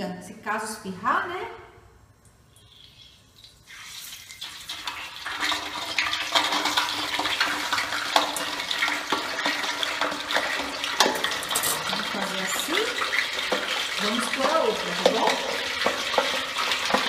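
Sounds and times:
oil crackles and pops: 2.2s - 17.0s
meat bubbling in hot oil: 2.4s - 17.0s.

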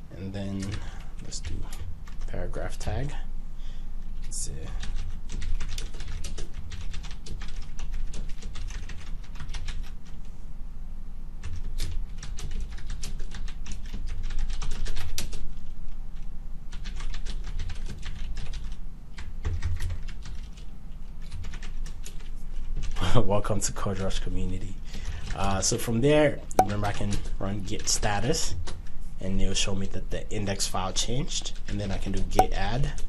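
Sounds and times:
low steady hum: 0.0s - 33.0s
computer keyboard typing: 4.8s - 10.0s, 11.4s - 15.5s, 16.7s - 23.0s.

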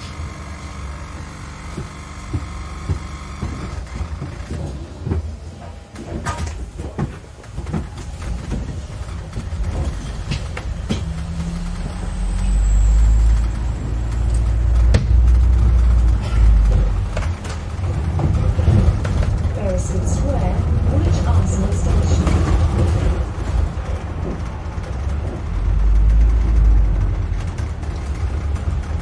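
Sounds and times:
bus engine and road rumble: 0.0s - 29.0s
rattles and knocks: 0.0s - 29.0s.

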